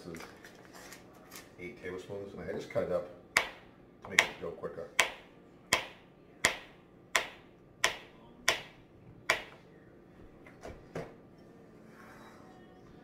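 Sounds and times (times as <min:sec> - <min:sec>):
knife chopping on plastic board: 0:03.4 - 0:09.6.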